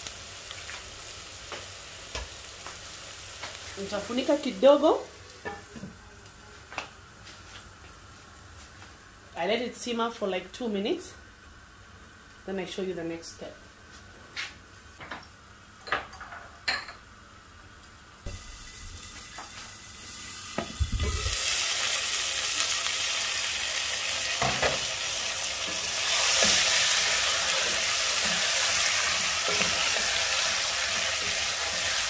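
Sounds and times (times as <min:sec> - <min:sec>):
food sizzling in oil: 0:00.0 - 0:05.6, 0:18.2 - 0:32.0.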